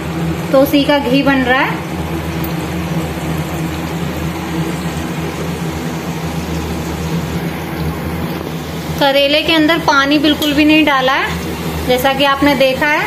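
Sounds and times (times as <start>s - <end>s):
frying hiss: 0.0s - 13.0s
gas stove low hum: 0.0s - 13.0s.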